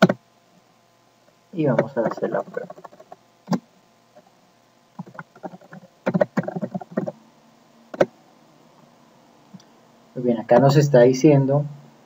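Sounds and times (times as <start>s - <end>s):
keyboard typing: 0.0s - 0.2s, 1.8s - 3.6s, 5.0s - 7.2s, 7.9s - 8.1s.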